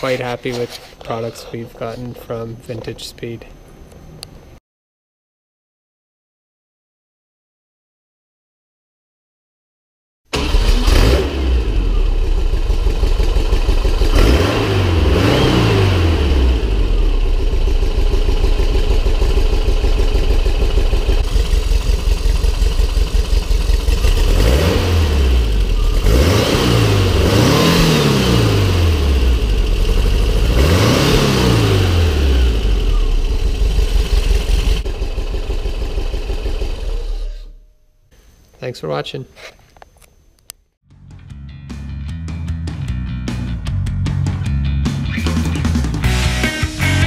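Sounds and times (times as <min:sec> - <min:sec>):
car engine idling with revving: 0:10.9 - 0:37.6.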